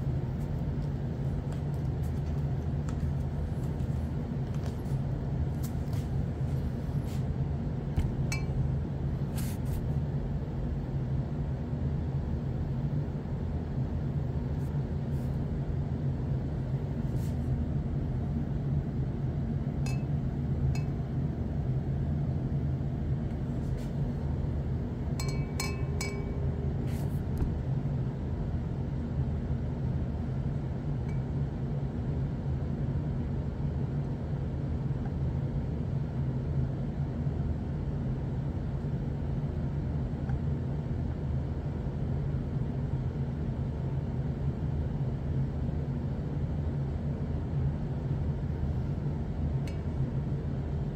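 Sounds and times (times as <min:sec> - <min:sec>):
low hum of equipment: 0:00.0 - 0:50.9
glass tube clinking on beaker: 0:08.3 - 0:08.6, 0:19.9 - 0:20.1, 0:25.2 - 0:26.3.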